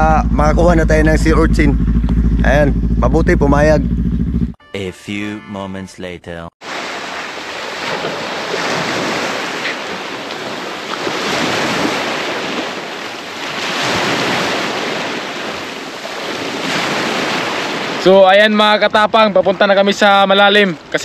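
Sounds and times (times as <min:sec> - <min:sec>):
small waves breaking on shore: 0:06.6 - 0:21.0.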